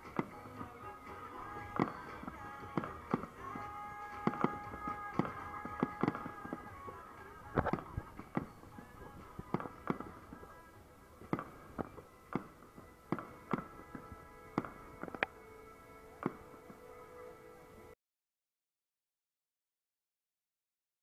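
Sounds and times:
firework shells bursting: 0.0s - 15.3s
faint music with held notes: 0.0s - 18.0s.

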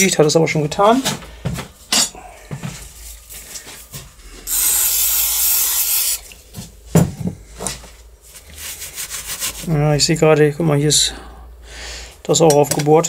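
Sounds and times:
spray hissing: 4.5s - 6.2s
cloth rubbing on steel: 8.2s - 9.8s.

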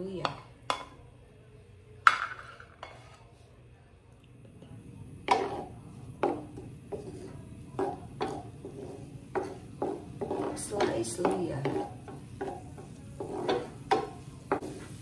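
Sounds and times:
wooden spoon knocking on pan: 5.3s - 14.9s.

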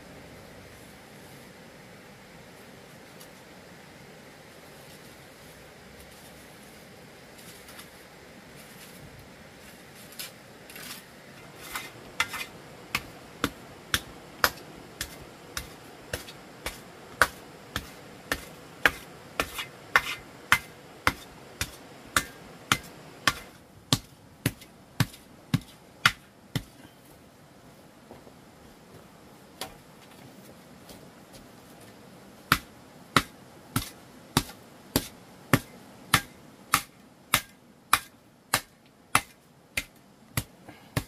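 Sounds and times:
hand tool striking: 11.6s - 26.7s, 32.5s - 41.0s.

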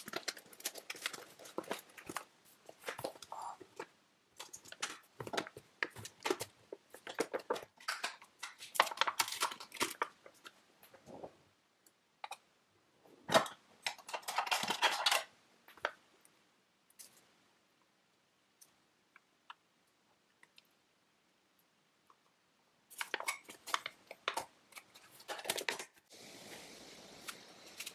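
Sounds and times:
plastic lid clicks and crinkling: 0.0s - 10.6s, 13.3s - 16.0s.

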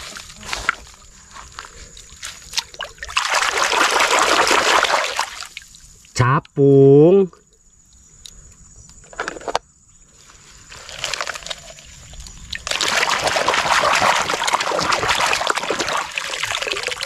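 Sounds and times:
water splashing and sloshing: 0.0s - 6.1s, 10.4s - 17.0s.

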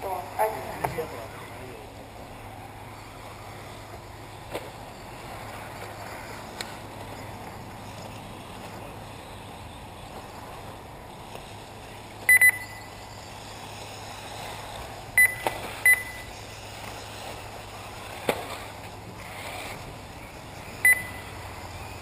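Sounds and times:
steady background hiss: 0.0s - 22.0s
short electronic beeps: 12.3s - 13.0s, 15.2s - 16.3s, 20.8s - 21.4s.

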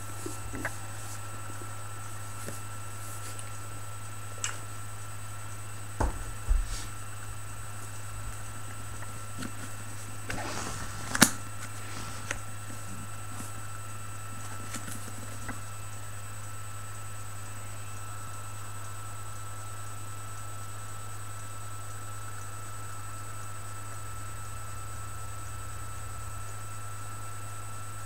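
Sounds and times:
book handling thumps: 0.0s - 1.6s, 6.0s - 7.0s, 9.0s - 13.5s
paper rustle: 0.0s - 3.6s, 8.9s - 13.6s
faint high whine: 0.0s - 28.0s
low electrical hum: 0.0s - 28.0s.

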